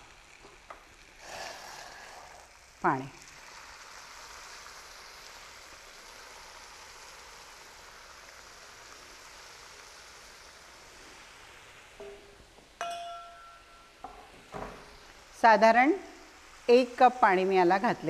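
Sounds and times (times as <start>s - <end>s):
water hissing in hot pan: 0.0s - 12.8s, 13.9s - 18.0s
metal utensil clinking: 12.8s - 14.0s.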